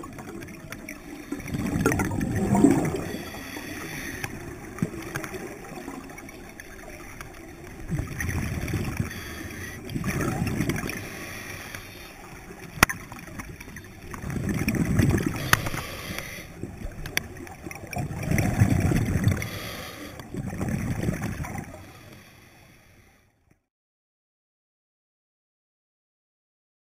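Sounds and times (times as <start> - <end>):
bubbles gurgling underwater: 0.0 - 11.1, 12.8 - 15.7, 16.6 - 21.8.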